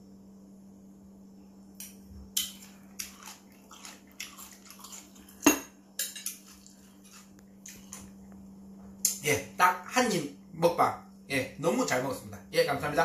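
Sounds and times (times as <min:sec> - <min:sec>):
eating and chewing: 0:02.3 - 0:09.2.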